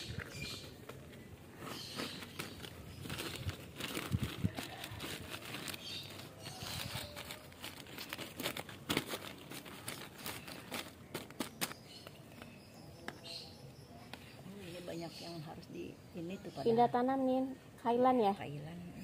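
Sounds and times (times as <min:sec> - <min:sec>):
crinkling rustling handling noise: 0:00.0 - 0:12.6.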